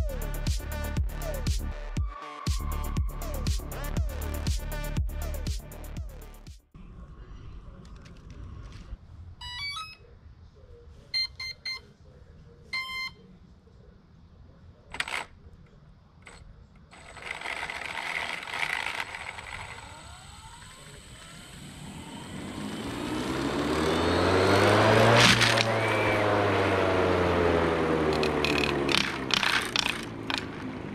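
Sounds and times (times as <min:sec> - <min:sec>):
motor whine rising in pitch: 0:17.2 - 0:30.6.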